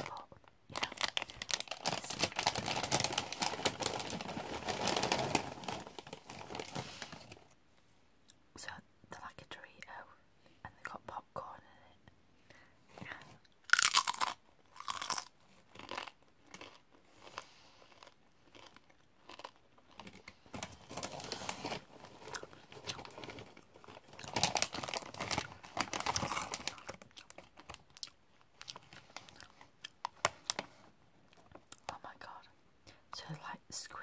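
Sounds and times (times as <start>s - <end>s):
crunching chip being eaten: 13.7s - 20.2s, 26.1s - 30.0s.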